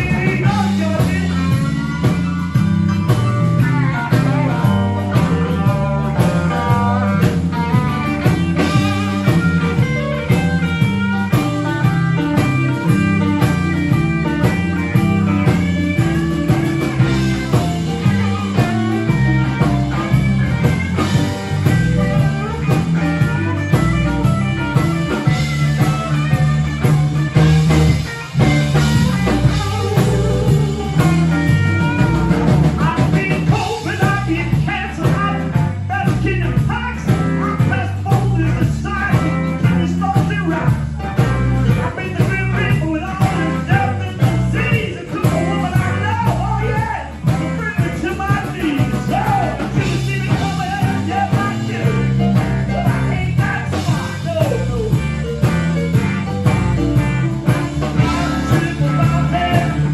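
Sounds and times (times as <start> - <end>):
drum kit: 0.0 - 59.9
electric bass: 0.0 - 59.9
electric guitar: 0.0 - 59.9
keyboards: 0.0 - 59.9.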